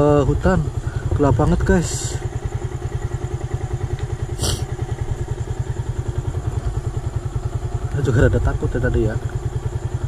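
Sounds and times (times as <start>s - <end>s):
motorcycle engine idling: 0.0s - 10.0s
brief hiss: 4.4s - 4.6s.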